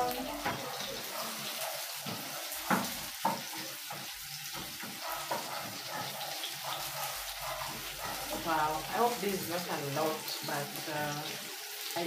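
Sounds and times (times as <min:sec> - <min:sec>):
onions sizzling in a frying pan: 0:00.0 - 0:12.0
utensil knocking against pan: 0:02.0 - 0:06.2.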